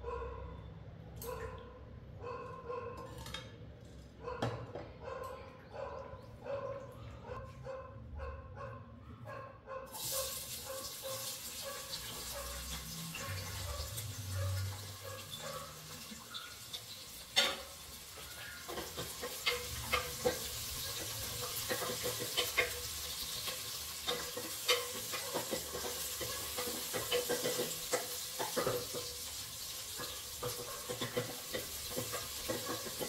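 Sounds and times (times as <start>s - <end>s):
dog barking: 0.0s - 0.6s, 1.2s - 3.2s, 4.2s - 16.5s, 30.4s - 31.0s
food frying in hot oil: 9.9s - 33.0s.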